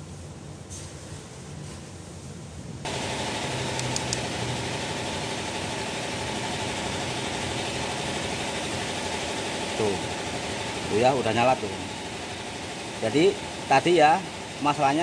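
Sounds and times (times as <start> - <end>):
vehicle engine idling: 2.9 - 15.0.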